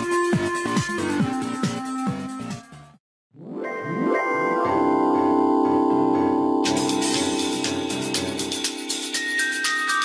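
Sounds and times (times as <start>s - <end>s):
music with quick percussion beat: 6.7s - 10.0s.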